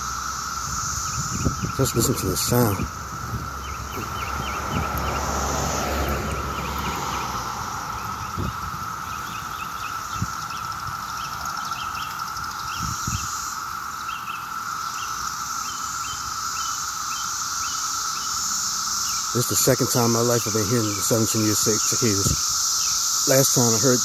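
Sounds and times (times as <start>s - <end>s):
birds chirping: 0.0s - 24.0s
cicadas droning: 0.0s - 24.0s
car passing: 1.7s - 12.4s.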